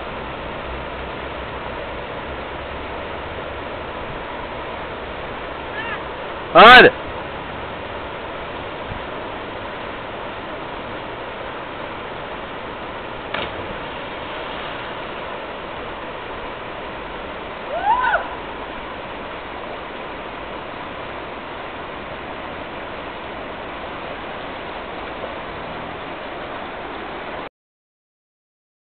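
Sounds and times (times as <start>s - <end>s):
river water rushing: 0.0s - 27.5s
person shouting: 5.7s - 6.0s, 17.7s - 18.4s.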